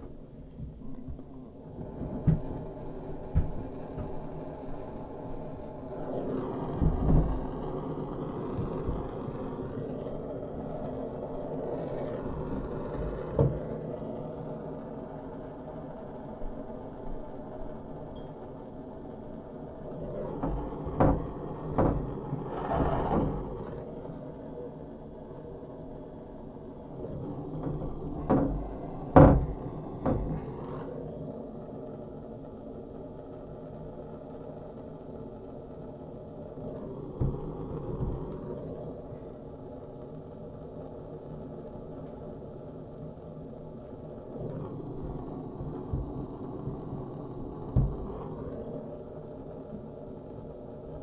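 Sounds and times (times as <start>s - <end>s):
gas torch roaring: 0.0s - 51.0s.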